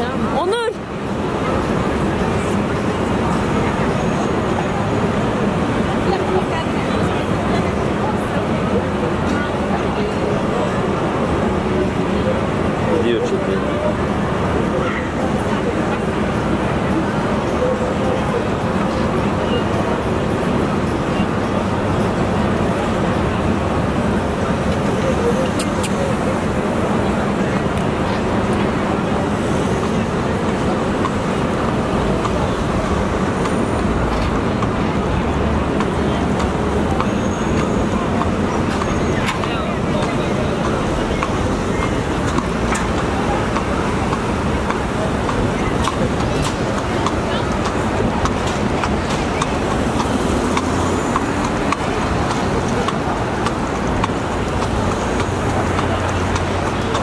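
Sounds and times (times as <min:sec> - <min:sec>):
busy city street traffic: 0:00.0 - 0:57.0
hooves clip-clopping on asphalt: 0:35.4 - 0:57.0.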